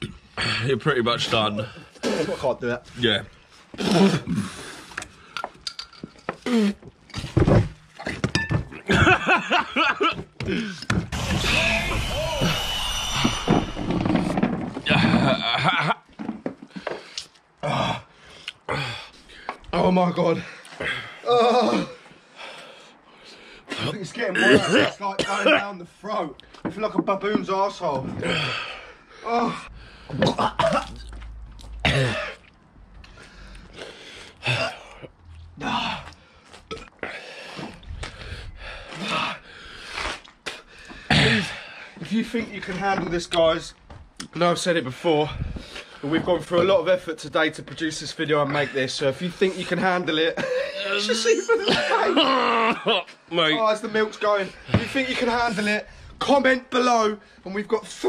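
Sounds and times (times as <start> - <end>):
man's voice: 11.2 - 14.1
man coughing: 23.7 - 25.8, 30.1 - 31.0, 31.8 - 32.4, 34.4 - 35.0, 41.1 - 41.6, 50.4 - 53.0.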